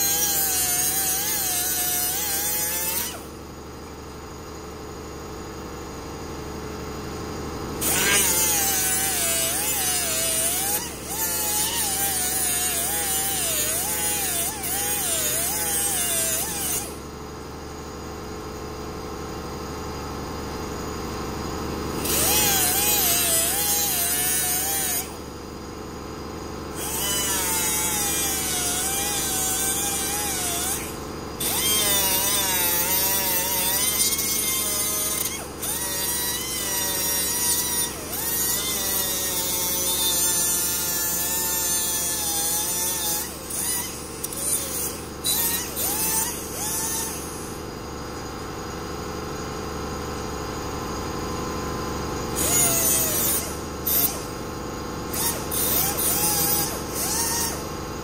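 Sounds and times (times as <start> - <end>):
die grinder cutting sheet metal: 0.0 - 3.4, 7.8 - 17.1, 21.9 - 25.4, 26.3 - 48.3, 52.2 - 58.0.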